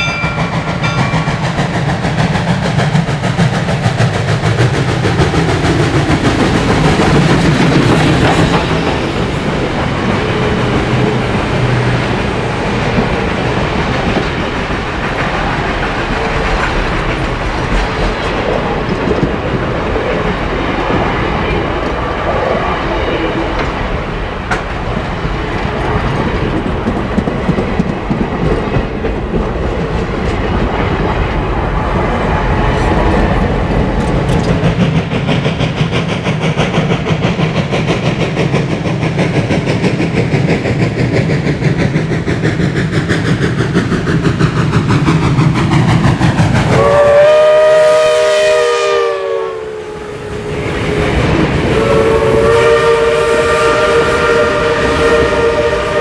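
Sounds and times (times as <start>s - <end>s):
train wheels rumbling on rails: 0.0s - 56.0s
steam locomotive whistle: 46.7s - 56.0s.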